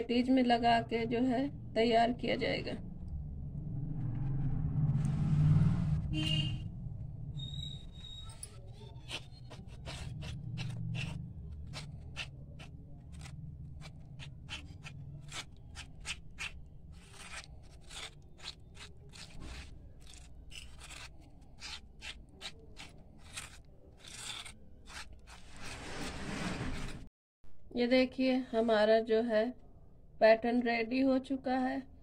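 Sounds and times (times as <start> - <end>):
spoon scraping steel bowl: 7.4 - 27.1.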